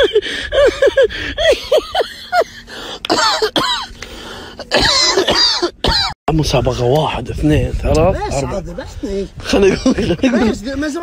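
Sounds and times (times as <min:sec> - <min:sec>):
hearty high-pitched laughter: 0:00.0 - 0:03.6.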